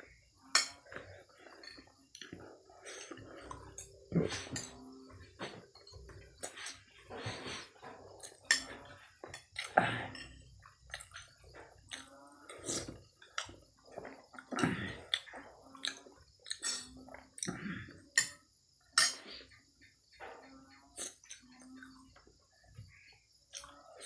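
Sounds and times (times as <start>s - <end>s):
spoon clinking on a plate: 19.0s - 19.3s.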